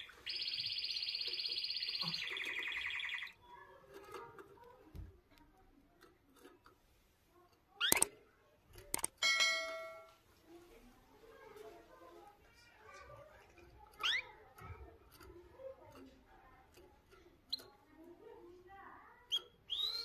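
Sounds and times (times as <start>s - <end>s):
bird chirps: 0.0s - 3.5s, 7.8s - 8.1s, 19.3s - 20.0s
canary trilling: 0.0s - 4.6s, 7.7s - 8.2s, 12.8s - 20.0s.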